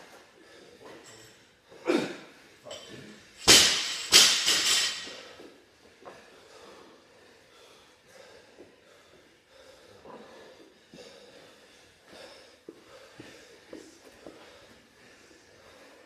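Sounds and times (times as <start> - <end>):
person breathing hard: 4.6 - 16.0.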